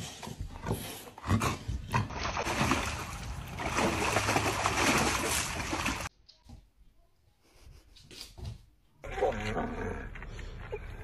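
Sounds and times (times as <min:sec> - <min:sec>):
dog splashing water: 0:02.0 - 0:06.1.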